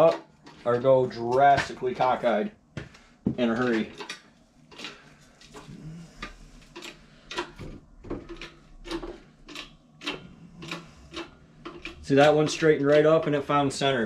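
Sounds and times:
hydraulic jack pumping: 5.6 - 13.1.

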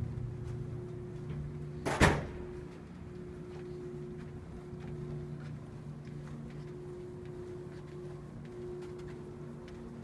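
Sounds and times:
low hum: 0.0 - 10.0
footsteps on carpet: 2.7 - 10.0.

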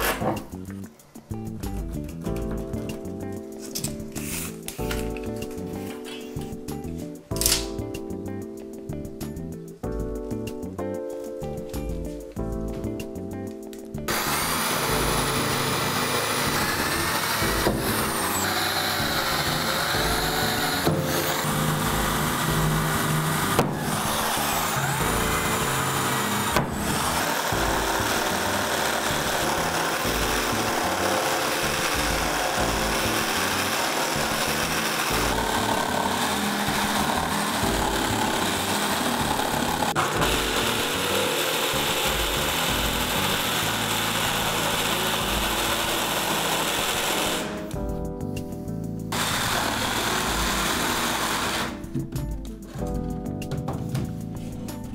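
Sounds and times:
jigsaw cutting worktop: 0.0 - 0.4, 3.8 - 6.2, 14.1 - 47.8, 49.1 - 52.0
background music with beat: 0.0 - 31.0, 34.7 - 54.9.

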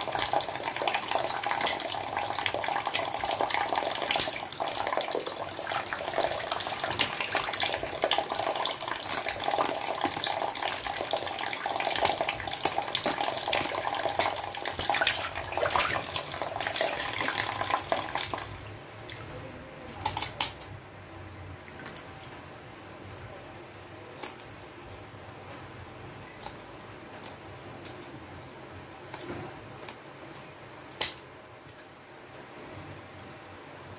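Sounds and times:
tap water running: 0.0 - 19.2.

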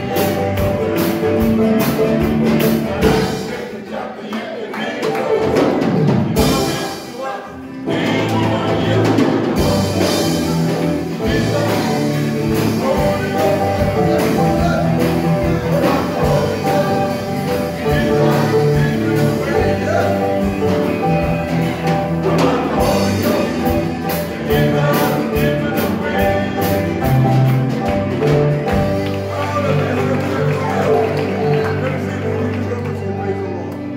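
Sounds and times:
congregation singing with instruments: 0.0 - 33.3
hands clapping in time: 0.2 - 2.8, 27.5 - 33.9.

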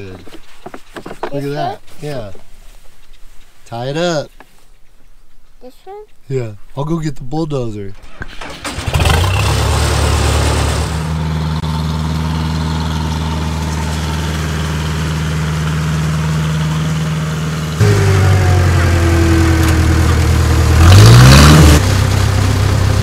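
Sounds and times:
bulldozer diesel engine running: 8.1 - 23.0.

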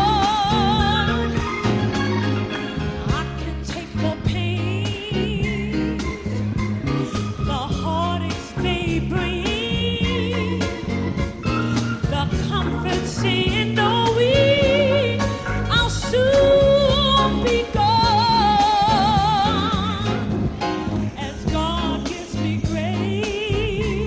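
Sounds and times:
band accompaniment: 0.0 - 24.0
singer with vibrato: 3.0 - 20.3.

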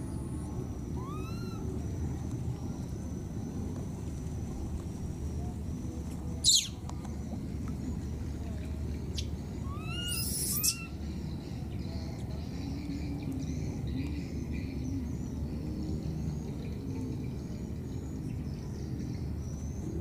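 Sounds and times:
low outdoor rumble: 0.0 - 20.0
high-pitched animal calls: 0.9 - 1.8, 6.4 - 6.8, 9.2 - 11.0.

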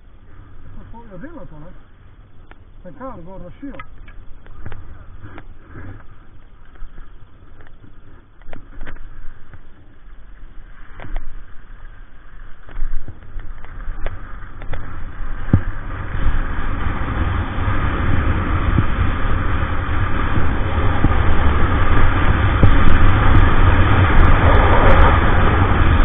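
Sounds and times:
wind buffeting microphone: 3.5 - 26.0
skis hissing over snow: 9.0 - 26.0.

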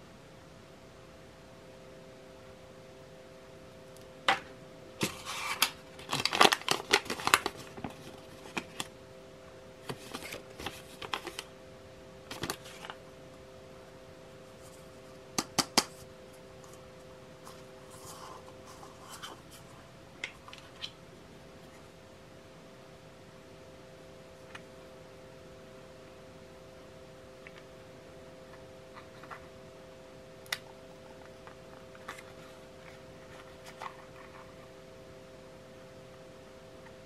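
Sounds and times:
faint steady hum: 0.0 - 37.0
paper rustling and crinkling: 5.0 - 8.9, 9.8 - 11.5, 12.3 - 13.0, 31.0 - 34.7.

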